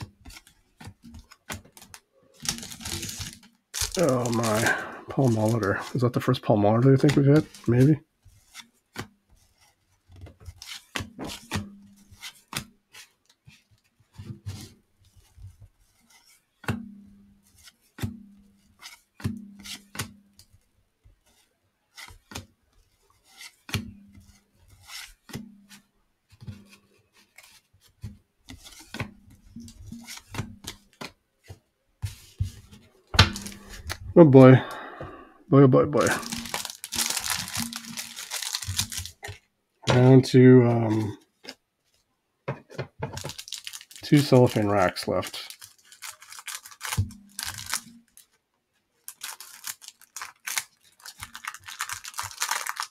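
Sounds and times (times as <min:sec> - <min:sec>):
cards sliding and rubbing: 0:00.0 - 0:16.7, 0:17.4 - 0:20.1, 0:21.2 - 0:29.1, 0:29.8 - 0:34.1.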